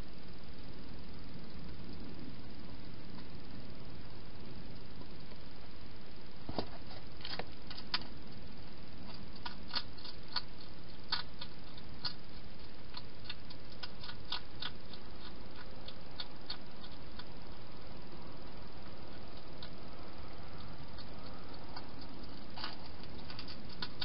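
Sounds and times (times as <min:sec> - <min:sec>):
steady hiss: 0:00.0 - 0:24.0
hedgehog crunching food: 0:06.5 - 0:08.4, 0:09.0 - 0:24.0.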